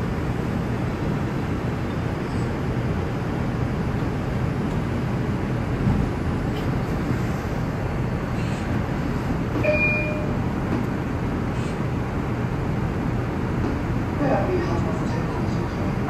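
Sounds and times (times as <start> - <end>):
subway train wheels rumbling: 0.0 - 16.0
brief high tone: 9.6 - 10.4.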